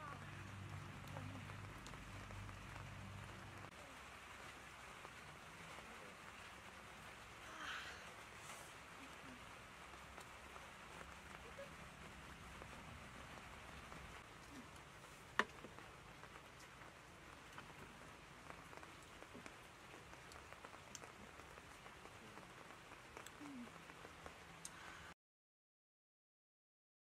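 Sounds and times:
faint outdoor hiss: 0.0s - 25.2s
faint ticks: 17.4s - 25.0s.

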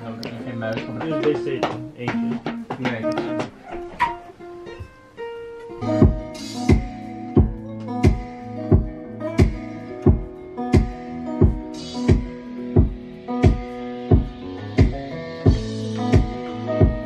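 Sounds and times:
plucked-string melody: 0.0s - 17.0s
kick drum beat: 0.7s - 3.6s, 5.8s - 17.0s
deep bass: 14.1s - 17.0s.

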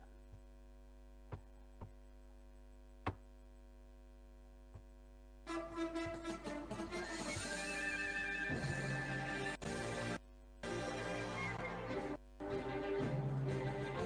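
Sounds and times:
electrical mains hum: 0.0s - 14.0s
national song music: 5.5s - 14.0s.

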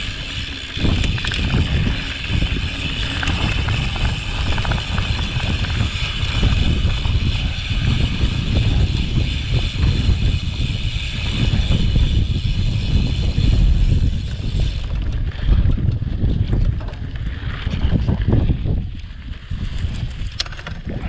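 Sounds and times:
bike clattering over ground: 0.0s - 10.2s
wind buffeting microphone: 0.0s - 21.0s
short clicks and rattles: 0.1s - 6.6s.

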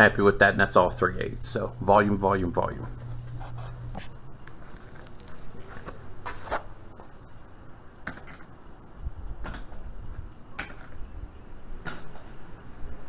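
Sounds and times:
footsteps on concrete floor: 2.8s - 7.2s.

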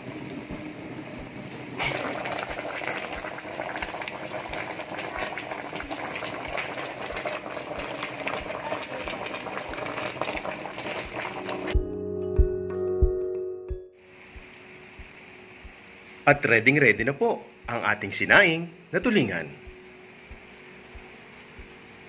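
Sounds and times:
water boiling hard: 0.0s - 11.8s.

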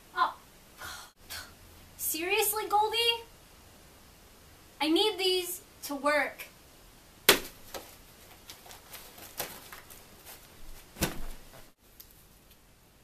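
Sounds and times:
paper rustling: 7.5s - 12.2s.

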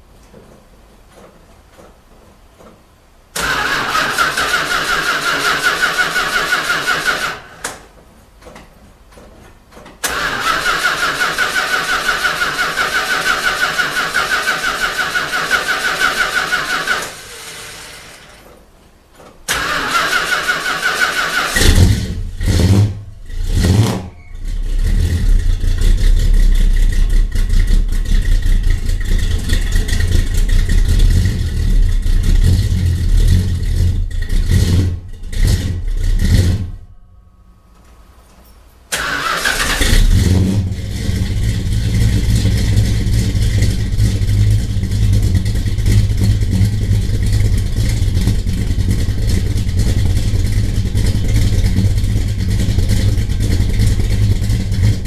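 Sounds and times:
car starter cranking: 3.3s - 7.8s, 10.0s - 18.5s, 19.4s - 22.6s, 38.9s - 55.0s
car engine running: 39.8s - 55.0s.

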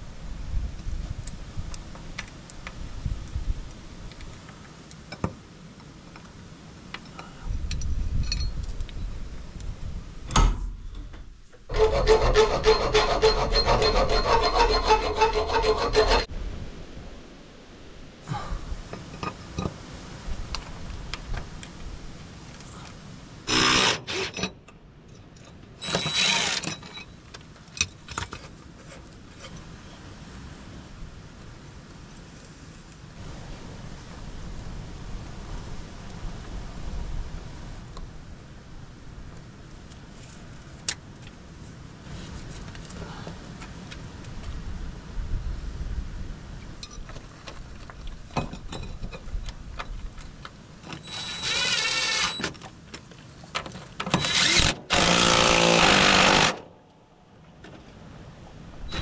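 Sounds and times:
metal clinks: 7.7s - 9.1s
power tool cutting metal: 11.7s - 16.3s, 23.5s - 24.4s, 25.8s - 26.8s, 51.0s - 52.5s, 54.2s - 56.6s.

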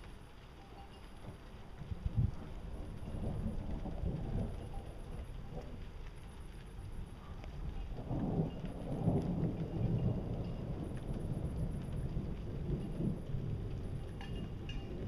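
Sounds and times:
rain falling: 0.0s - 15.0s
thunder rolling: 1.2s - 15.0s.

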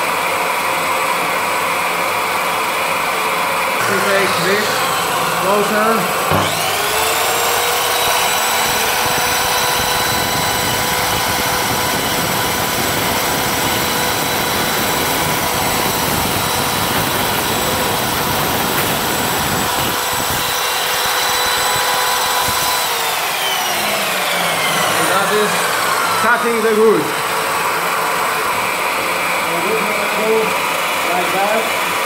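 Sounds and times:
mitre saw cutting wood: 0.0s - 32.0s.

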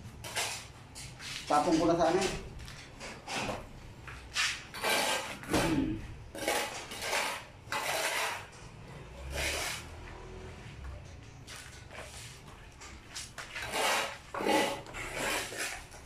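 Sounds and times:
trowel scraping cement mortar: 0.2s - 0.7s, 4.3s - 8.6s, 9.2s - 10.0s, 13.0s - 16.0s.

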